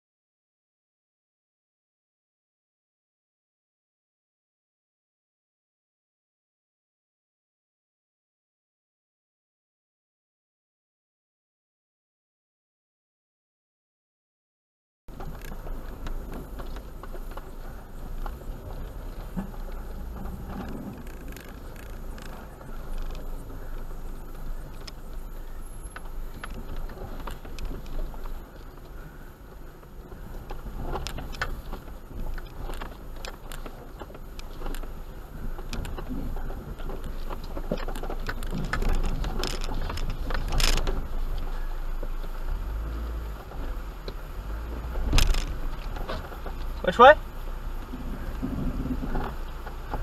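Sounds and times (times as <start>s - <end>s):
low engine rumble: 15.1s - 50.0s.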